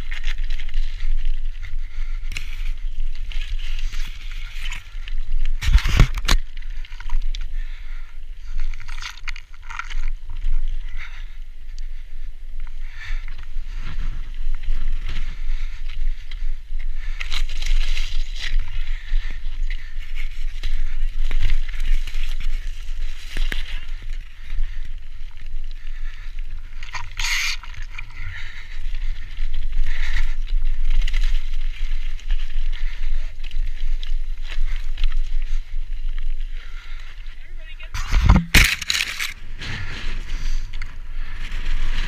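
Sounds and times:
bike rattling: 0:00.0 - 0:42.0
tyres crunching over stone: 0:37.9 - 0:40.2.

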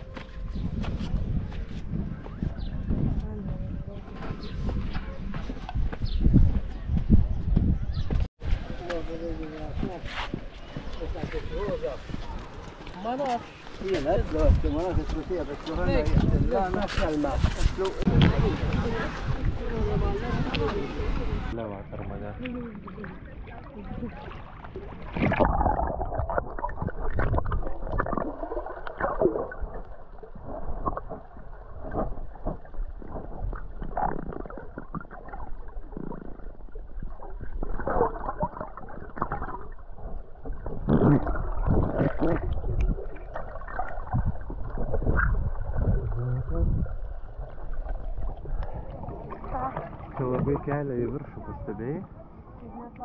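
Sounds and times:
underwater gurgling and sloshing: 0:14.2 - 0:53.0.

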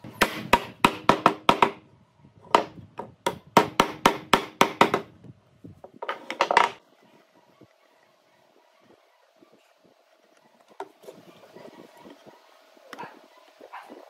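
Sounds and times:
hammering on wood: 0:00.1 - 0:01.8, 0:02.5 - 0:05.1.

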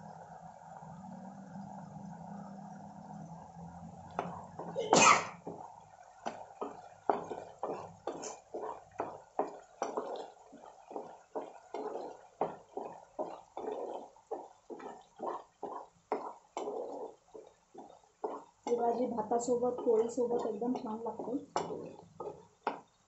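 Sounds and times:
spatula stirring thick gravy: 0:04.2 - 0:04.8, 0:05.4 - 0:23.0.

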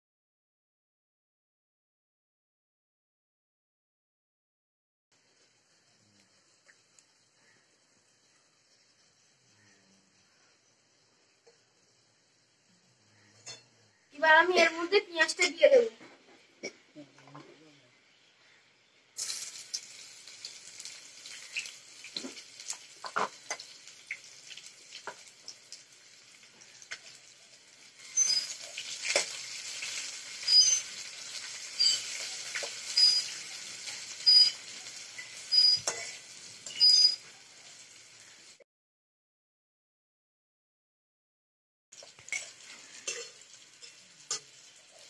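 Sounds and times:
onions sizzling in hot oil: 0:05.2 - 0:15.8, 0:19.2 - 0:38.6, 0:42.0 - 0:45.0
spatula scraping against pot: 0:28.0 - 0:34.6, 0:35.2 - 0:37.2, 0:42.3 - 0:44.6.

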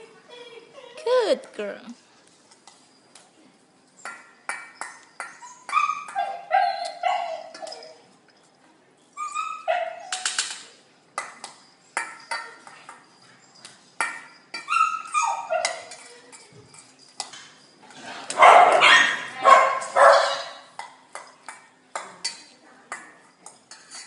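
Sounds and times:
metal food bowl clinking: 0:04.0 - 0:08.5, 0:10.0 - 0:24.0
dog barking and yipping: 0:05.3 - 0:08.0, 0:09.2 - 0:10.2, 0:14.6 - 0:15.9, 0:18.3 - 0:20.7.

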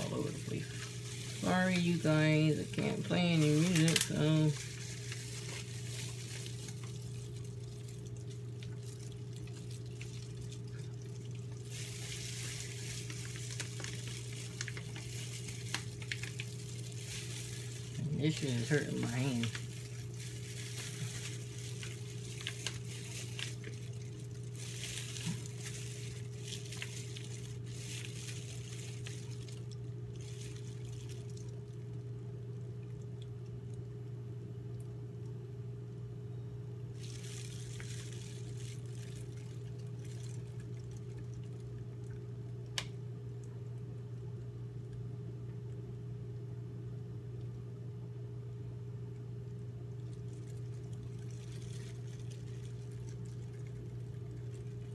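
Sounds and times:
plastic bag crinkling: 0:00.0 - 0:31.7, 0:37.0 - 0:41.6, 0:50.0 - 0:54.9
steady low hum: 0:00.0 - 0:54.9.

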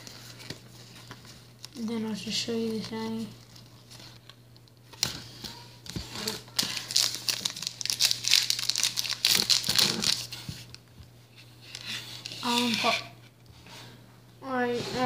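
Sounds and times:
wrapper crinkling and tearing: 0:02.7 - 0:10.8.

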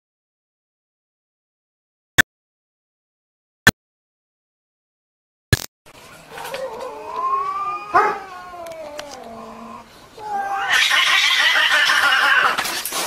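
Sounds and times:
cat yowling: 0:06.3 - 0:12.6
cat screeching: 0:06.4 - 0:12.7.

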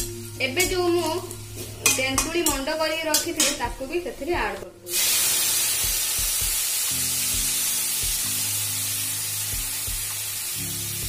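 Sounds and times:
liquid sizzling in hot oil: 0:04.9 - 0:11.0.

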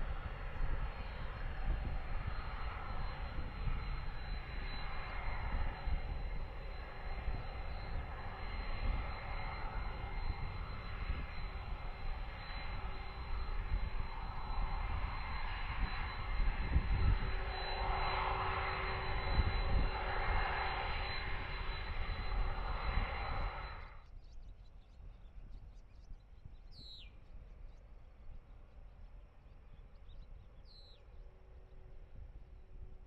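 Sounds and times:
jet engines rumbling and whining: 0:00.0 - 0:24.1.

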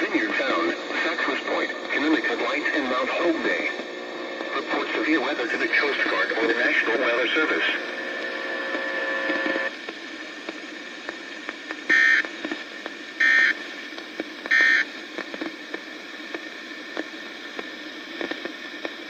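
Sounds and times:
radio static with clicks: 0:00.0 - 0:19.0
data tone bursts: 0:11.9 - 0:12.2.

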